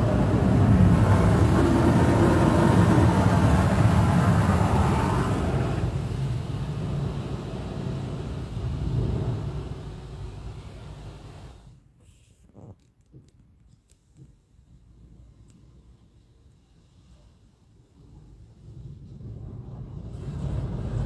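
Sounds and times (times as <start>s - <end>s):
car wash rushing noise: 0.0s - 11.8s, 18.0s - 21.0s
low mechanical rumble: 0.0s - 12.7s.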